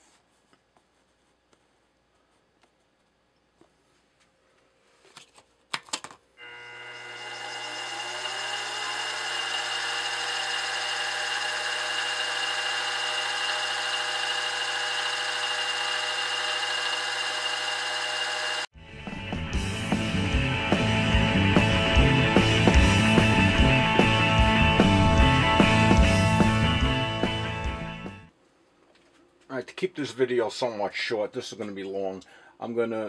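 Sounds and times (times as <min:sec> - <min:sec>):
milling machine motor whine: 0:06.4 - 0:18.7.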